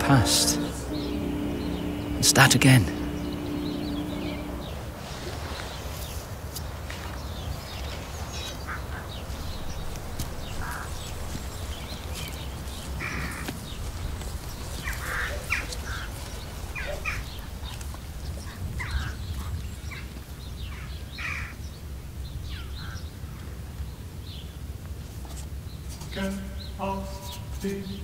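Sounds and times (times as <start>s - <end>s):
low outdoor rumble: 0.0s - 5.4s.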